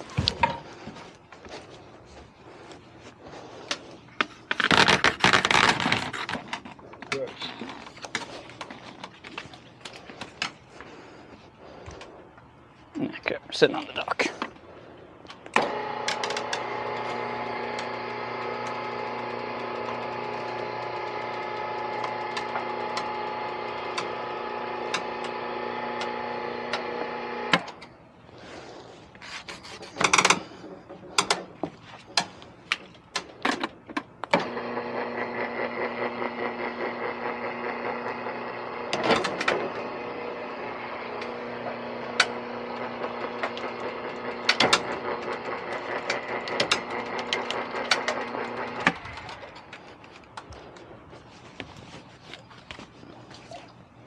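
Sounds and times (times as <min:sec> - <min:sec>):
motor humming: 0:15.6 - 0:27.8, 0:34.4 - 0:49.7.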